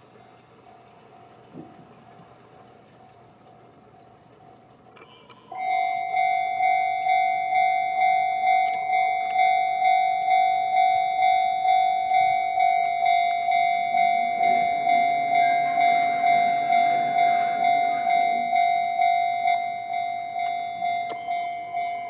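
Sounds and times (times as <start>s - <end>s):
broad noise: 0.0s - 22.0s
level-crossing alarm bell: 5.5s - 22.0s.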